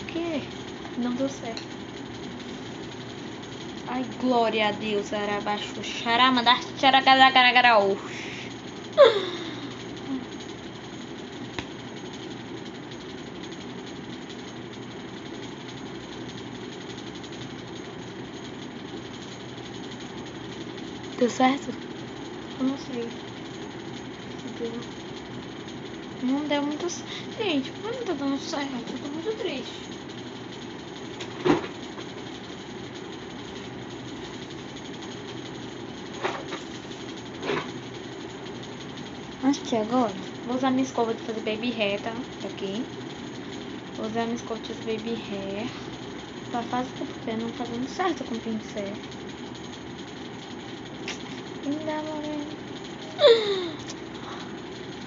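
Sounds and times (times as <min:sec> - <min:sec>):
steady mechanical hum: 0:00.0 - 0:55.0.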